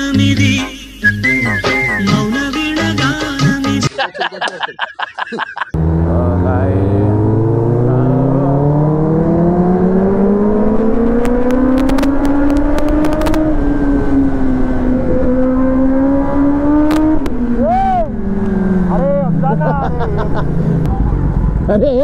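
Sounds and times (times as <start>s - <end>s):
motorcycle engine accelerating: 5.8s - 22.0s.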